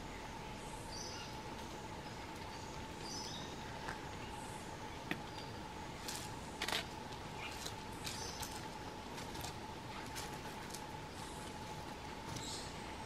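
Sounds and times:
small birds chirping: 0:00.0 - 0:13.0
clicks and rustles in leaf litter: 0:06.0 - 0:12.6.

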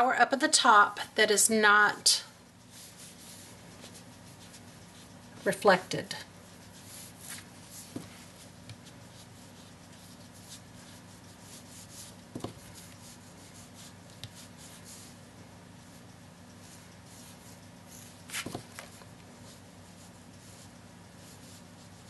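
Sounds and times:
ink applicator rubbing on card: 0:06.4 - 0:22.0.

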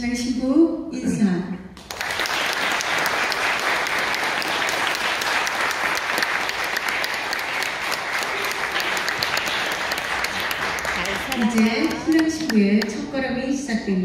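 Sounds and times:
crowd applauding: 0:01.8 - 0:12.9.

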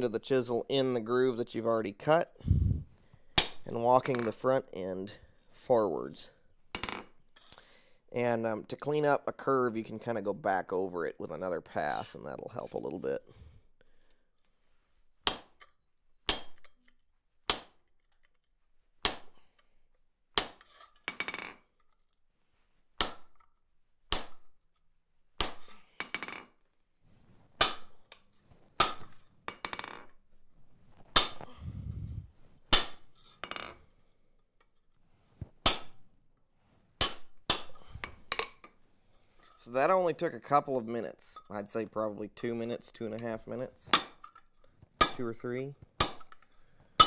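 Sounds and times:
hammer striking chisel on steel: 0:15.2 - 0:15.6, 0:16.3 - 0:16.7, 0:17.5 - 0:17.8, 0:19.0 - 0:19.4, 0:20.4 - 0:20.7, 0:23.0 - 0:23.3, 0:24.1 - 0:24.4, 0:25.4 - 0:25.7, 0:27.6 - 0:28.0, 0:28.8 - 0:29.0, 0:31.2 - 0:31.4, 0:32.7 - 0:33.1, 0:35.6 - 0:36.0, 0:37.0 - 0:38.5, 0:45.0 - 0:45.4, 0:46.0 - 0:46.4.

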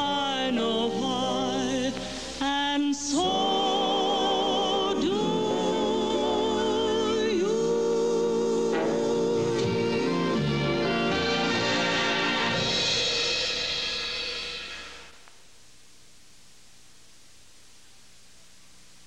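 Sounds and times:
slow melody with vibrato: 0:03.3 - 0:15.0.

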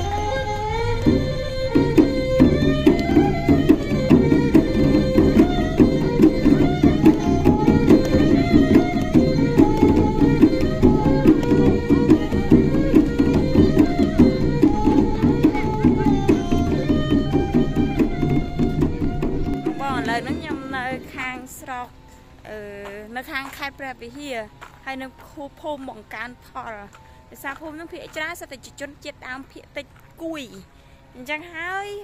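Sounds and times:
melody over percussion beat: 0:00.0 - 0:22.4.

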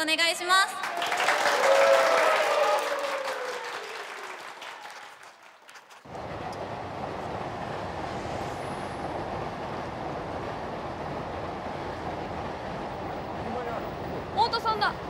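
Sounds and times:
steady background noise: 0:06.0 - 0:15.0.

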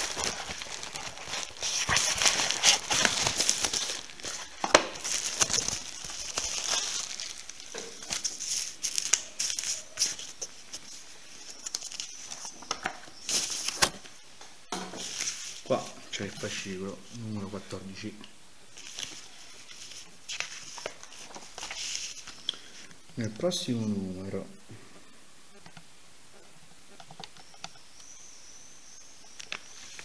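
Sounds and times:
packaging crinkling and rustling: 0:00.0 - 0:14.1, 0:18.7 - 0:22.9.

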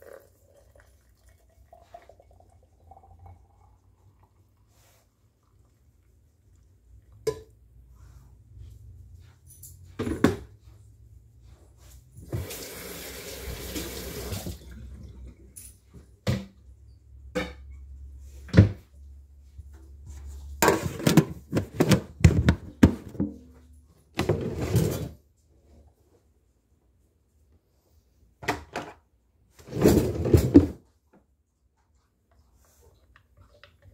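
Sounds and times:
running water: 0:12.2 - 0:15.2.

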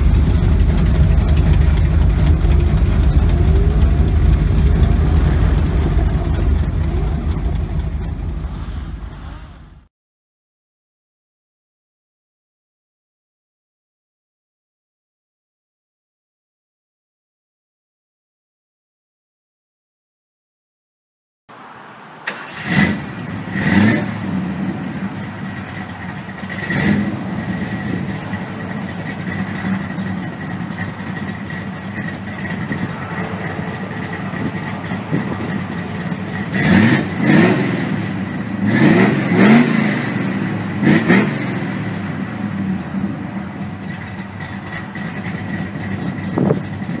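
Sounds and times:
car engine idling: 0:00.0 - 0:09.9, 0:22.2 - 0:40.9, 0:41.5 - 0:47.0
engine throttle revs: 0:00.0 - 0:09.9, 0:22.2 - 0:47.0.

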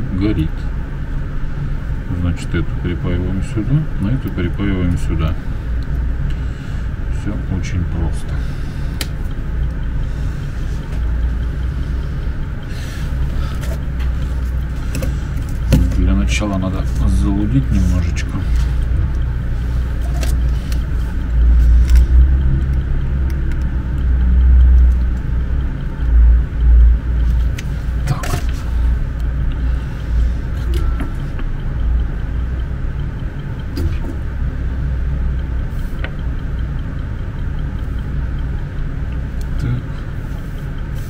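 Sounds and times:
steady low rumble: 0:00.0 - 0:41.0.

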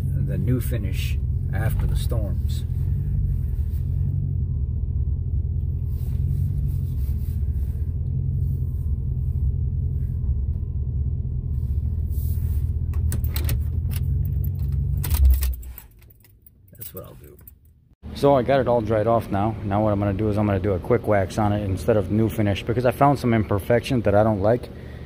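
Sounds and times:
car cabin rumble: 0:00.0 - 0:15.6
clicks and rattles: 0:13.0 - 0:17.7.

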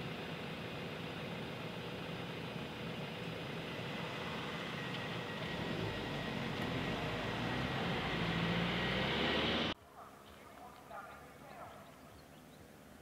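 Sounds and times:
cars driving past on asphalt: 0:00.4 - 0:09.8.

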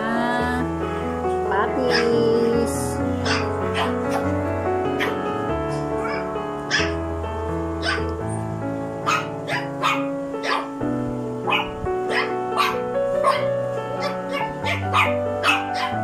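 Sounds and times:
background music with chords: 0:00.0 - 0:16.0.

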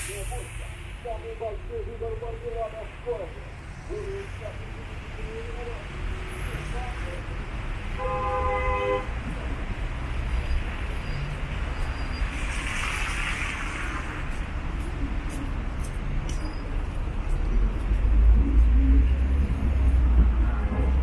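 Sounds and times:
hiss: 0:00.0 - 0:01.1
road traffic rumble: 0:00.0 - 0:21.0.

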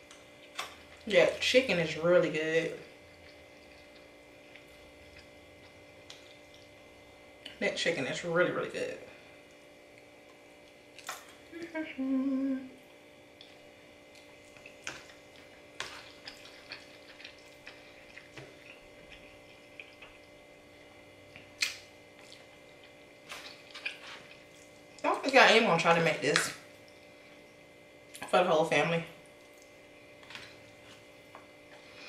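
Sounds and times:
wet chewing and mouth smacks: 0:03.1 - 0:06.8, 0:13.3 - 0:20.4, 0:21.3 - 0:25.1, 0:29.2 - 0:29.8
person humming: 0:11.5 - 0:12.8.

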